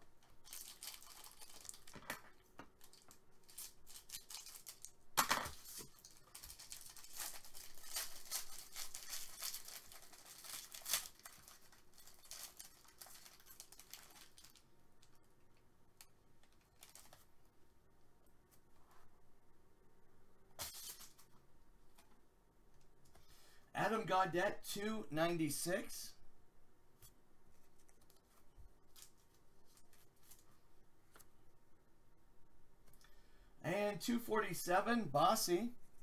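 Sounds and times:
foil pack tearing and crinkling: 0.4 - 2.2, 2.8 - 14.6.

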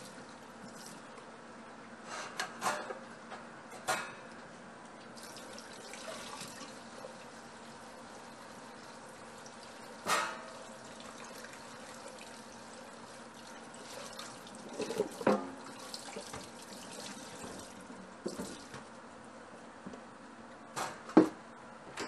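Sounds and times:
tap running into sink: 16.1 - 18.9.

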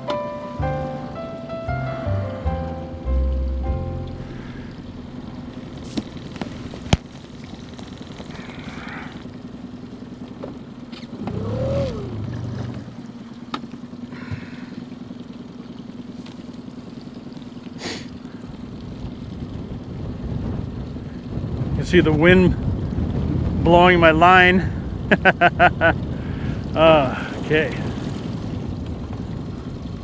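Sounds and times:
outboard motor running: 0.0 - 30.0
swelling sound rising in pitch: 0.6 - 6.3, 11.3 - 12.8.

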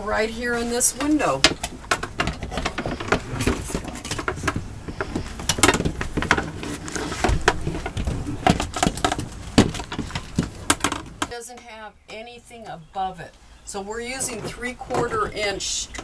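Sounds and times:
roller blind clicks and knocks: 0.3 - 11.4.

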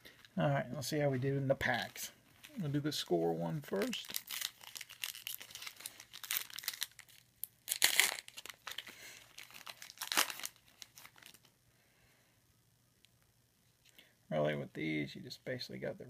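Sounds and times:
wrapper crinkling: 1.7 - 11.6
wrapper ripping open: 3.7 - 11.5.

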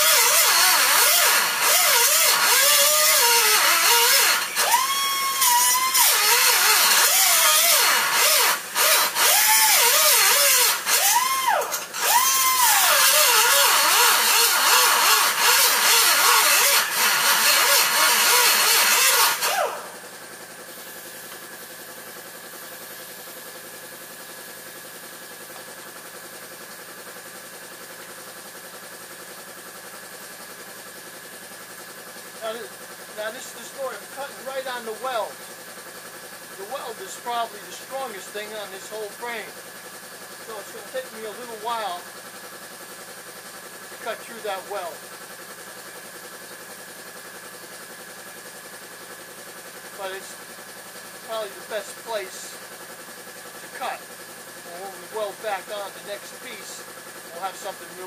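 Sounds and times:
angle grinder cutting steel: 0.0 - 20.0, 51.2 - 52.6, 54.6 - 58.0.

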